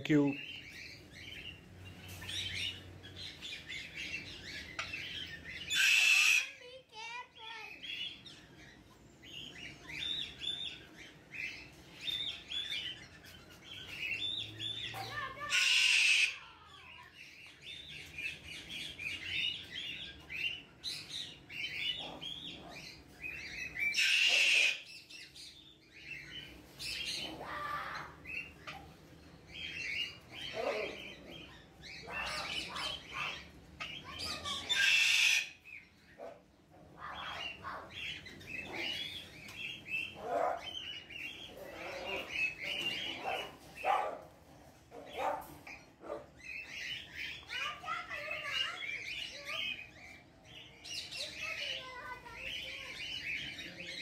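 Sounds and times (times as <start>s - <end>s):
birds chirping: 0.0s - 54.0s
parrot squawking: 2.2s - 8.2s, 14.9s - 17.1s, 21.2s - 25.2s, 26.2s - 44.3s, 44.9s - 53.5s.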